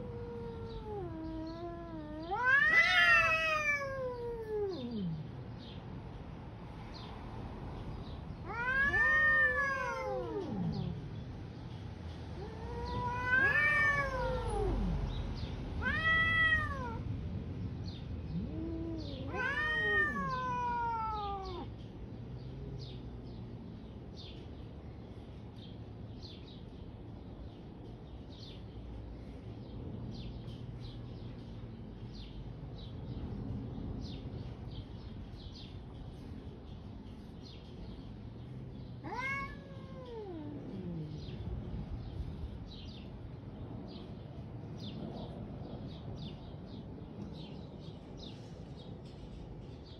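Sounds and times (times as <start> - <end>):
cat yowling: 0.0 - 5.3, 8.4 - 11.0, 12.4 - 15.0, 15.8 - 17.0, 18.3 - 21.7, 39.0 - 41.4.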